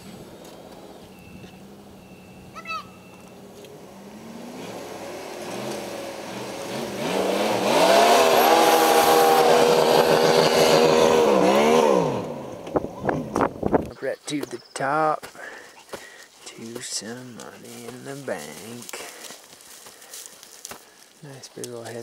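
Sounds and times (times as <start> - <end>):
truck engine revving hard: 3.8 - 13.0.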